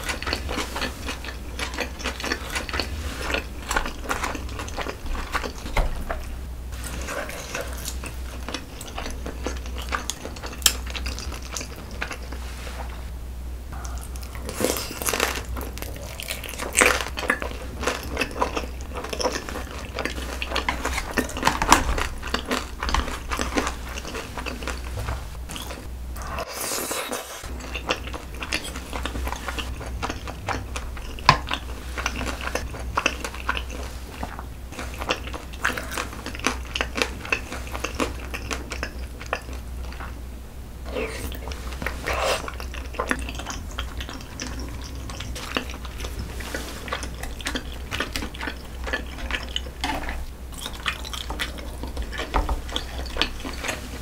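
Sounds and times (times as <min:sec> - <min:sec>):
biting and chewing food: 0:00.0 - 0:12.5, 0:13.8 - 0:40.2, 0:40.8 - 0:54.0
steady low hum: 0:00.0 - 0:54.0
small food crunches: 0:13.9 - 0:24.9.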